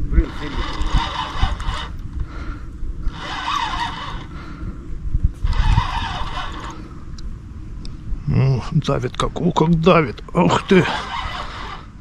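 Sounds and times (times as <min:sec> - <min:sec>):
fishing reel whirring: 0:00.0 - 0:02.0, 0:03.0 - 0:04.6, 0:05.4 - 0:06.9, 0:10.7 - 0:12.0.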